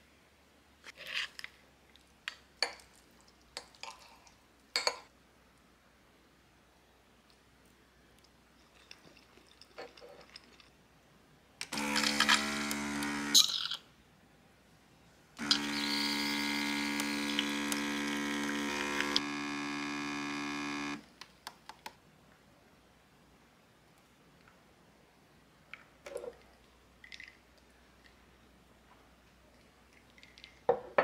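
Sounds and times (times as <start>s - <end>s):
small electric motor running: 11.7s - 13.5s, 15.4s - 21.0s.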